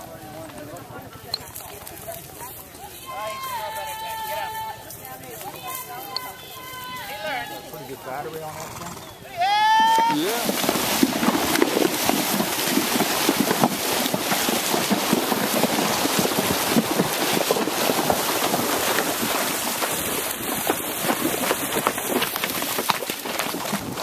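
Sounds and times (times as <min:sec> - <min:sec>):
horse hooves splashing in water: 0:09.6 - 0:24.0.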